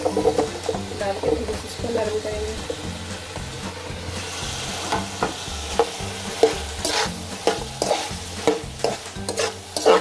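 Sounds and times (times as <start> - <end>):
vegetables sizzling: 0.0 - 10.0
metal spatula scraping pan: 5.8 - 10.0.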